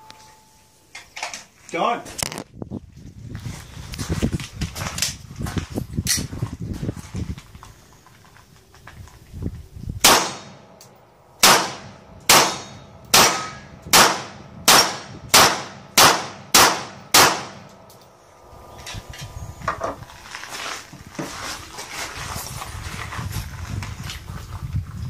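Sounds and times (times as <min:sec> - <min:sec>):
pistol shots: 0:10.0 - 0:10.8, 0:11.4 - 0:18.1.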